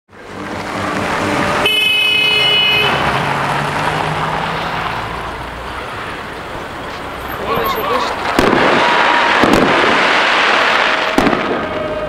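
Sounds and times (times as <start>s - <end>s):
vehicle engine passing: 0.1s - 8.7s
street traffic noise: 0.1s - 12.0s
car horn: 1.3s - 3.4s.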